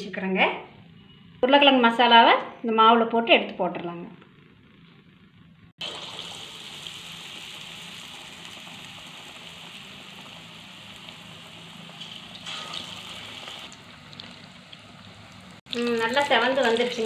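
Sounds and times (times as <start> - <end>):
batter deep-frying in hot oil: 4.2 - 17.0.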